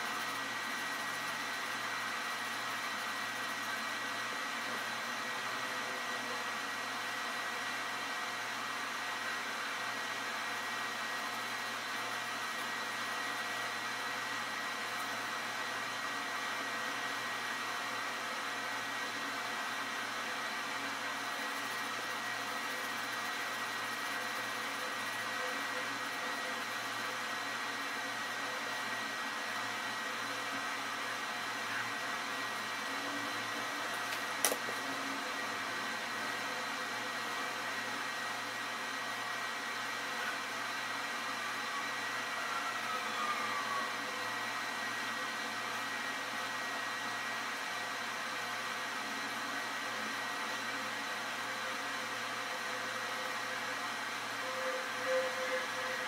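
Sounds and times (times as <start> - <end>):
whirring hiss with faint tones: 0.0 - 56.0.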